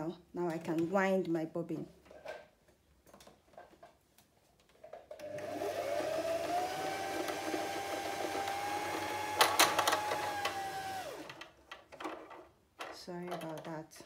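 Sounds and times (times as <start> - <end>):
sewing machine motor whine: 5.3 - 11.4.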